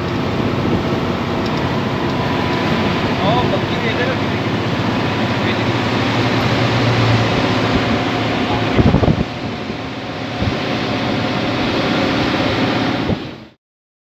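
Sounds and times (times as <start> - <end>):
moving vehicle rushing: 0.0 - 13.6
wind on the microphone: 5.8 - 13.4.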